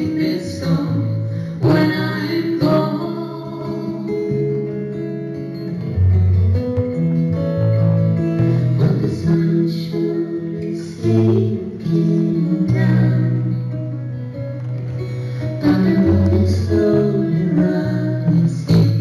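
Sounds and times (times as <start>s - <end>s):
acoustic guitar: 0.0s - 19.0s
keyboard held notes: 10.8s - 12.2s.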